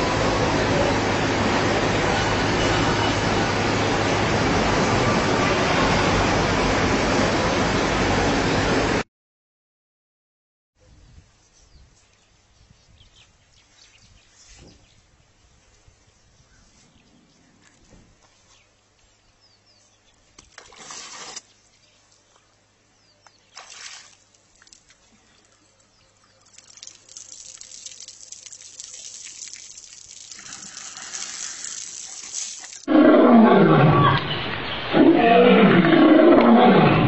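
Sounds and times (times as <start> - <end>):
soft water splashes: 23.4 - 32.9
lion roaring: 32.9 - 37.0.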